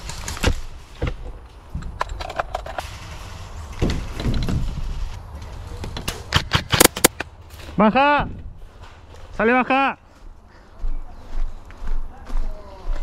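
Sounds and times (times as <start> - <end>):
rustling and scraping: 0.0 - 9.4.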